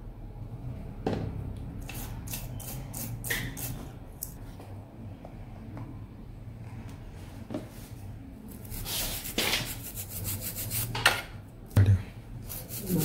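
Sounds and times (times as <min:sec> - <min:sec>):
toothbrush scrubbing: 0:08.6 - 0:10.9, 0:12.4 - 0:13.0.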